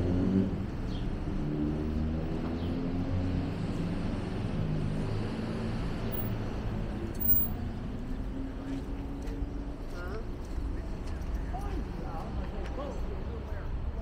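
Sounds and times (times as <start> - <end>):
street traffic noise: 0.0 - 14.0.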